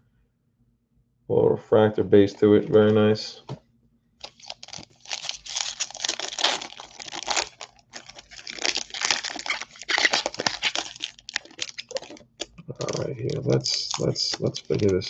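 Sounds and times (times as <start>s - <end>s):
foil wrapper crinkling and tearing: 4.2s - 15.0s.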